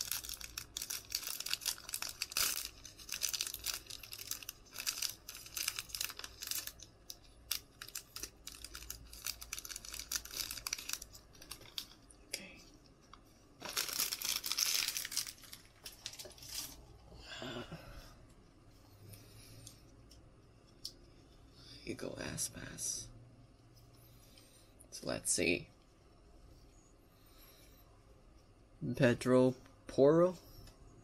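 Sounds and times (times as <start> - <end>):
plastic wrapper crinkling and tearing: 0.0 - 12.2, 13.1 - 16.9.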